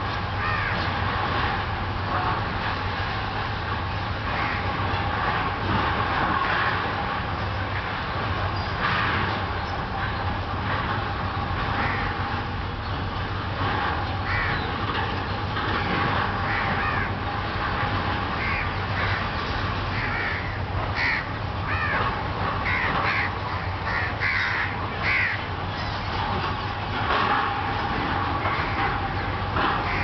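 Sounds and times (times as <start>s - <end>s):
crows cawing: 0.4s - 0.9s, 4.3s - 4.7s, 11.8s - 12.2s, 14.2s - 14.6s, 16.4s - 17.2s, 18.4s - 26.0s, 29.8s - 30.0s.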